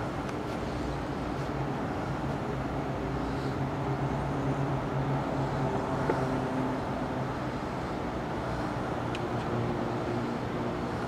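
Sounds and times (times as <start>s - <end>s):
droning machine hum: 0.0s - 11.0s.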